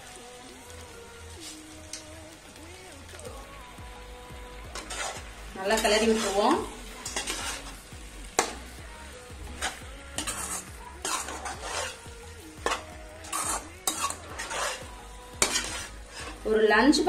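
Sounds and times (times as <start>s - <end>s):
food sizzling: 0.0s - 17.0s
metal spatula scraping a pan: 4.7s - 8.6s, 9.5s - 17.0s.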